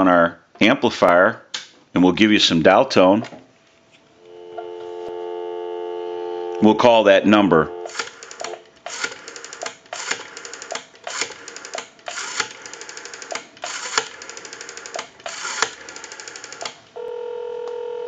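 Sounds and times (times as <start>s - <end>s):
telephone ringback tone: 4.3s - 6.7s, 7.5s - 8.0s, 17.0s - 18.0s
rotary dial clicks: 7.9s - 16.8s.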